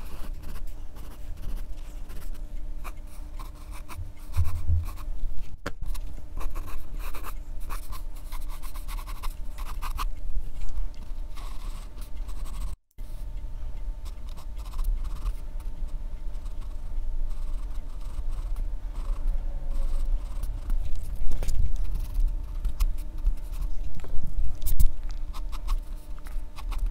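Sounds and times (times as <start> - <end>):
pencil scratching on paper: 0.0 - 5.1, 5.8 - 10.1, 11.0 - 12.8, 16.4 - 23.8, 24.6 - 26.9
low steady hum: 0.0 - 26.9.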